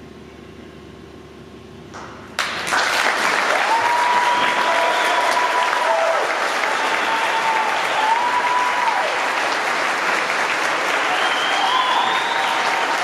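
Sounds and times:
audience applauding: 2.4s - 13.0s.

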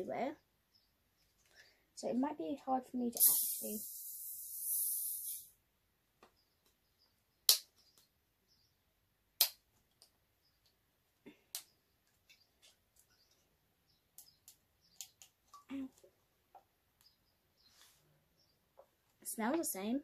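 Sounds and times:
drink can fizzing hiss: 3.2s - 5.5s.

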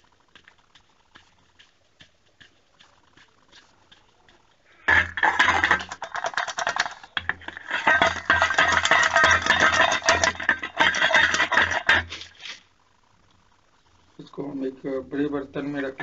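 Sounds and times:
puffed rice crackling in hands: 0.0s - 12.7s.

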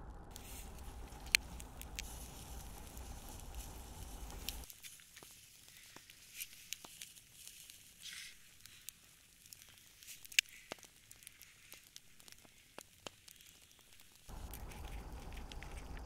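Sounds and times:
low rumble: 0.0s - 4.7s, 14.3s - 16.0s
fire crackling and popping: 0.0s - 16.0s.

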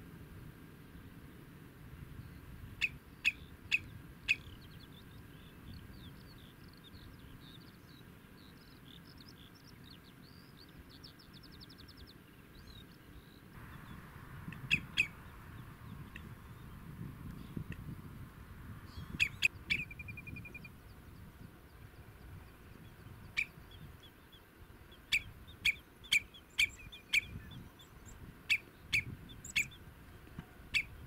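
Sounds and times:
faint chirping birdsong trill: 2.1s - 31.0s
sharp bird call notes: 14.5s - 15.2s.

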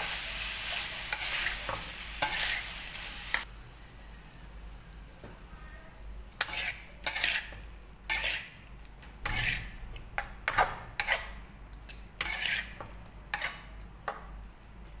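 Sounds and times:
metal utensil scraping frying pan: 0.0s - 3.5s, 6.3s - 13.7s.

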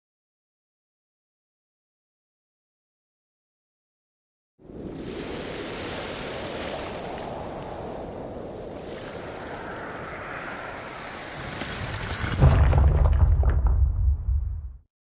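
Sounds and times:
sea surf: 4.6s - 12.0s
wind: 4.6s - 14.5s.

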